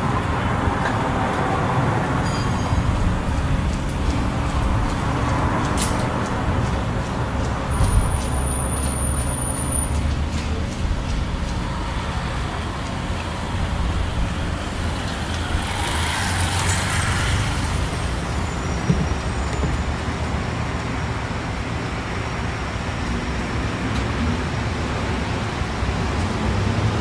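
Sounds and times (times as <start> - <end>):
low rumble of road traffic: 0.0 - 27.0
vehicle passing by: 11.5 - 18.7.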